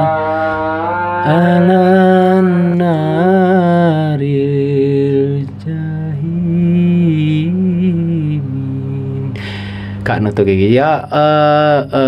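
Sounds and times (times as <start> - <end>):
man singing a devotional chant: 1.2 - 9.4, 10.6 - 12.0.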